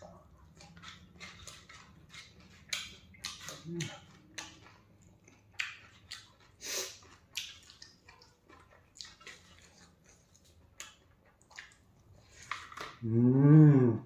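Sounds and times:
wet chewing: 0:00.0 - 0:13.0.

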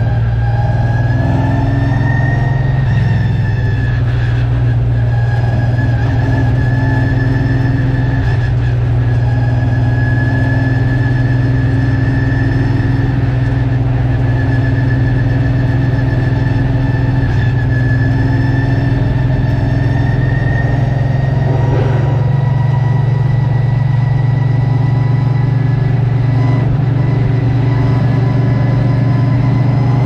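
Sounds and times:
race car engine drone: 0:00.0 - 0:30.0
steady high whine: 0:20.6 - 0:28.5.

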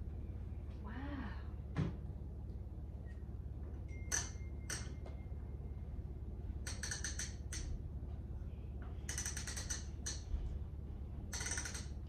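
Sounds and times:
steady low hum: 0:00.0 - 0:12.0
plastic toy knobs clicking: 0:09.1 - 0:10.2.

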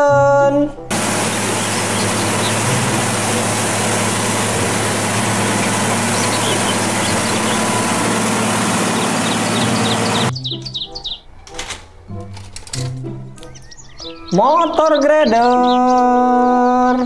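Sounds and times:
diesel engine running: 0:00.9 - 0:10.3
water gushing and splashing on pavement: 0:00.9 - 0:10.3.

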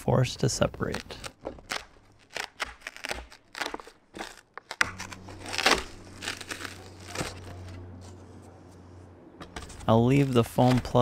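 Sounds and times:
glued plywood crackling and tearing: 0:00.5 - 0:08.3, 0:09.4 - 0:11.0
low hum: 0:04.8 - 0:10.9.

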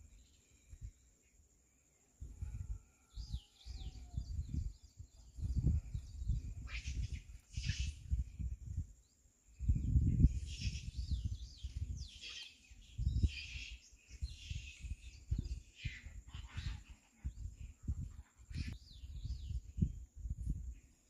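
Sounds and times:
wind buffeting microphone: 0:02.2 - 0:20.9
birds chirping and calling: 0:02.5 - 0:08.6, 0:09.6 - 0:19.9.

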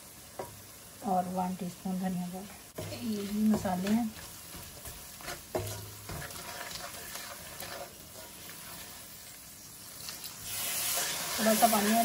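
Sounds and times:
onions sizzling in oil: 0:00.0 - 0:12.0
wooden spoon scraping a pan: 0:02.7 - 0:12.0.

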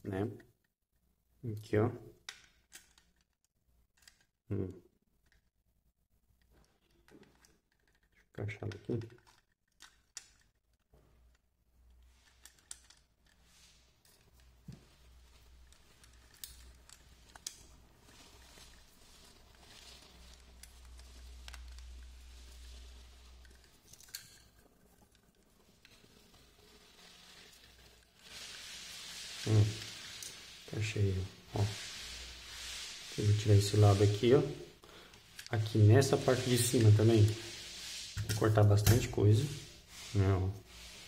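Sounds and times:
plastic parts clicking and knocking: 0:06.4 - 0:17.8.

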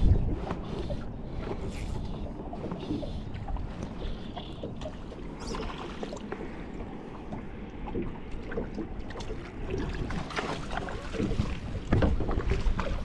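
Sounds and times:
small waves lapping against hull: 0:00.0 - 0:13.0
small splashes and knocks: 0:07.3 - 0:13.0.

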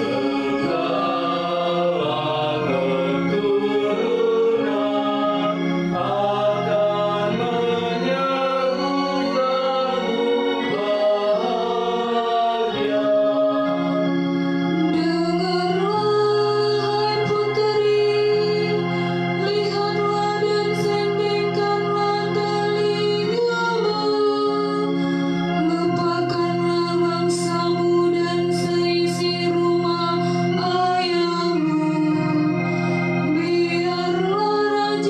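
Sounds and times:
held accompaniment chords: 0:00.0 - 0:35.0
woman singing into a microphone: 0:14.7 - 0:18.8, 0:19.4 - 0:25.0, 0:25.6 - 0:32.6, 0:33.3 - 0:35.0.

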